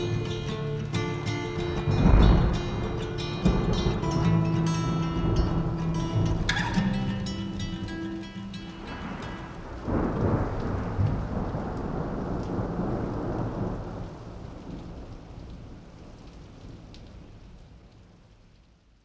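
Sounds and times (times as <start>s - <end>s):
steady rain: 0.0s - 19.0s
thunderclap with rumble: 1.6s - 7.2s, 8.8s - 17.5s.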